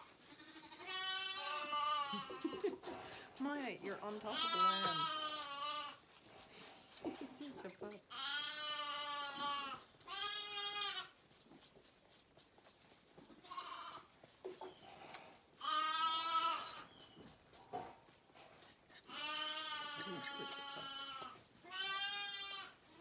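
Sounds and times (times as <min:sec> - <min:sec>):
lambs bleating: 0:00.2 - 0:02.8, 0:04.1 - 0:06.0, 0:08.0 - 0:11.2, 0:13.3 - 0:14.2, 0:15.6 - 0:17.0, 0:19.0 - 0:23.0.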